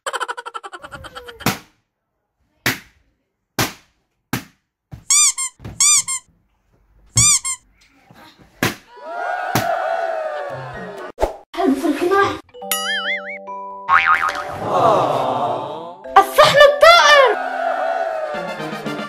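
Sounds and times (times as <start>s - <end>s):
high-pitched squeaks: 5.1s - 6.3s, 7.2s - 7.6s.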